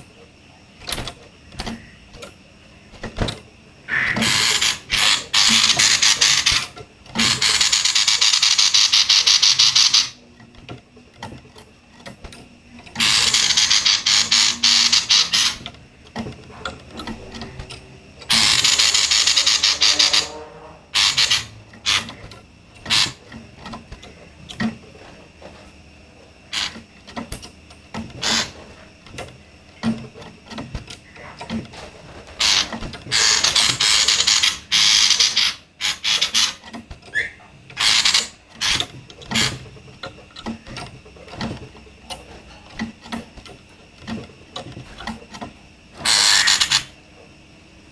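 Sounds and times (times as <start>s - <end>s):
bird rasping chatter calls: 3.8s - 10.2s, 13.0s - 15.6s, 18.3s - 20.3s, 20.9s - 22.2s, 32.4s - 38.8s, 46.0s - 46.9s.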